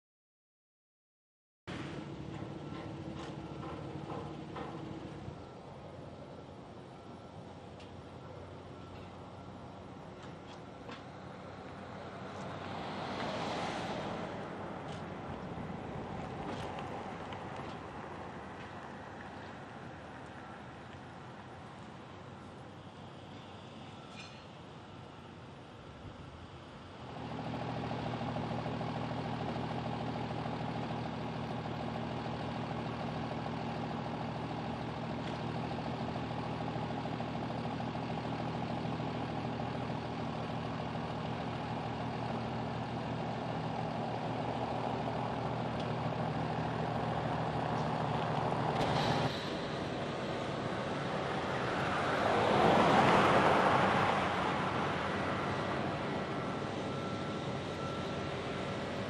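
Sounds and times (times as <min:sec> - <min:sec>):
vehicle engine running: 0:01.8 - 0:07.0, 0:27.0 - 0:59.0
vehicle passing close by: 0:11.8 - 0:17.3, 0:47.2 - 0:59.0.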